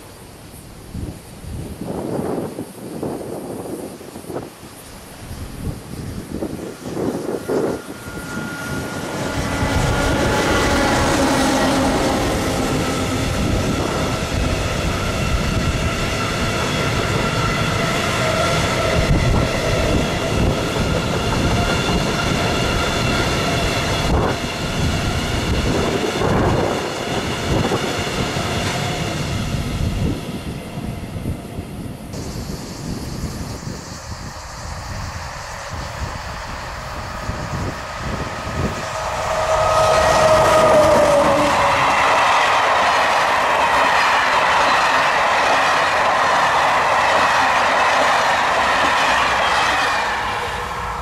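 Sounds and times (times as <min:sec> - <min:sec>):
train wheels rumbling on rail: 0:00.0 - 0:51.0
high ringing tones: 0:07.0 - 0:12.1.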